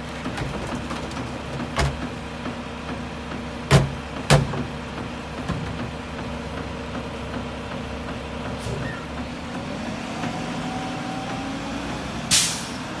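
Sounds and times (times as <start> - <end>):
air brakes hissing: 8.6 - 9.1, 12.3 - 12.9.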